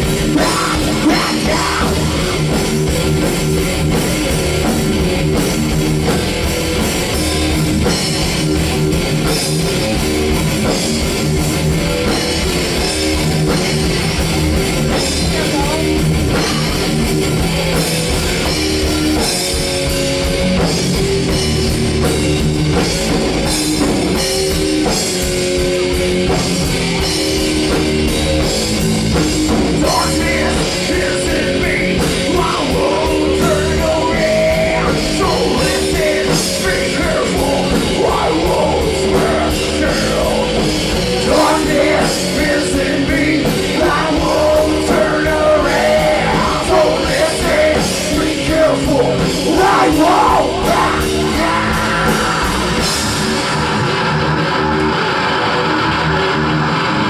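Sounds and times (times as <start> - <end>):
bass: 0.0 - 57.0
drum kit: 0.0 - 57.0
electric guitars: 0.0 - 57.0
singer screaming: 0.3 - 2.5, 15.2 - 17.0, 32.6 - 56.9.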